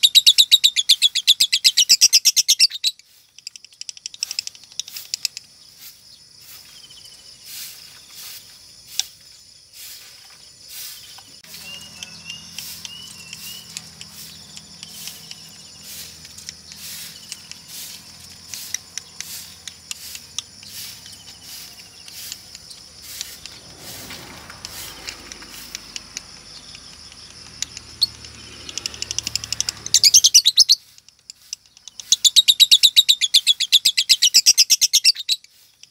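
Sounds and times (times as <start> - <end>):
wavering bird chirps: 0.0 - 35.9
lovebird clicking: 0.3 - 5.7, 11.1 - 34.7.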